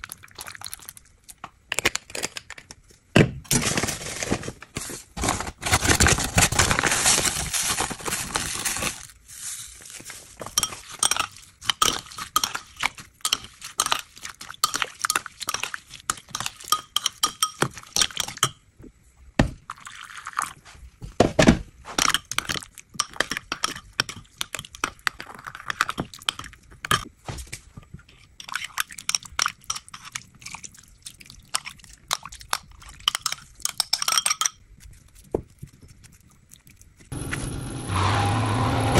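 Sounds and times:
metal spoon clinking in ceramic bowl: 0:10.4 - 0:14.0, 0:14.6 - 0:18.6, 0:22.0 - 0:25.0, 0:32.8 - 0:34.6.

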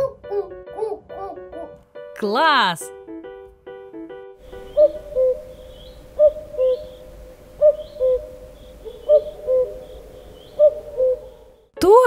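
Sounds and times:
cuckoo calling: 0:04.4 - 0:11.7.

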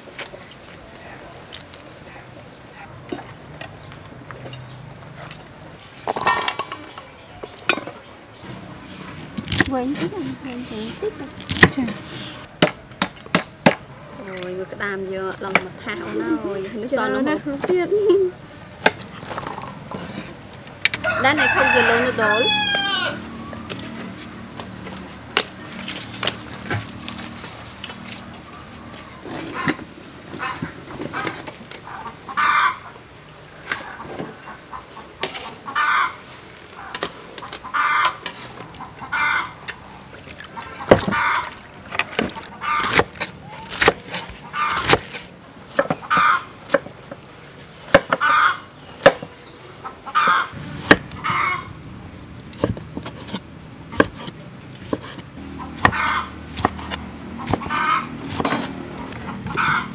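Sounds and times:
metal cooking utensils clinking: 0:06.1 - 0:08.0, 0:19.2 - 0:20.4
chickens clucking: 0:28.3 - 0:33.1, 0:33.7 - 0:43.1, 0:43.8 - 0:46.9, 0:47.9 - 0:51.8, 0:54.0 - 0:59.9.

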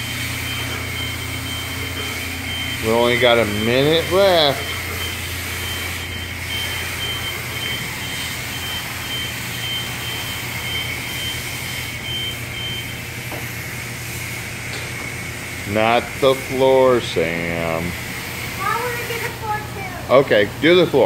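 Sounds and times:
high beeping tone: 0:00.0 - 0:13.1
pressure washer spraying water: 0:00.0 - 0:21.0
pump humming: 0:00.0 - 0:21.0.

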